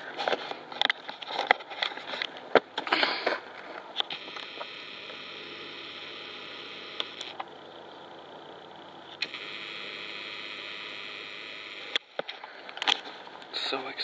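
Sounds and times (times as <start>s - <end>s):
camera handling noise: 0.2s - 5.2s, 11.9s - 13.3s.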